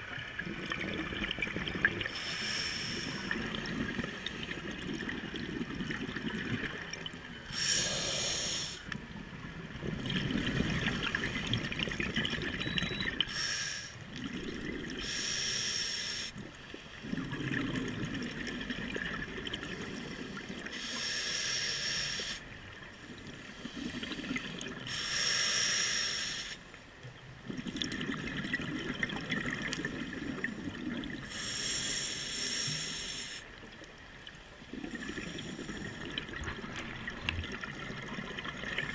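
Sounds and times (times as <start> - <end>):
exhaled bubbles rumbling: 0.0 - 2.1, 3.2 - 7.4, 9.0 - 13.2, 14.1 - 15.0, 16.4 - 20.7, 27.4 - 31.2, 34.6 - 38.9
regulator hissing inhales: 2.1 - 3.4, 7.5 - 8.9, 13.3 - 14.0, 15.0 - 16.4, 20.2 - 22.4, 23.5 - 26.6, 31.3 - 33.5.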